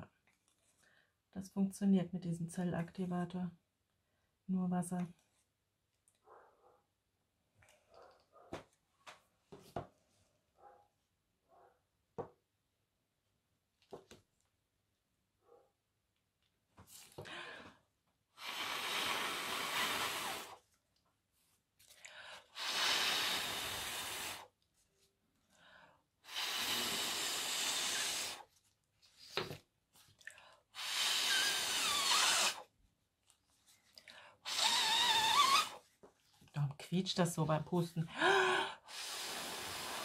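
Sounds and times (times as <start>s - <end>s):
person blowing hard: 18.4s - 20.6s, 22.5s - 24.5s, 26.2s - 28.5s, 30.8s - 32.7s, 34.4s - 35.8s, 38.2s - 40.0s.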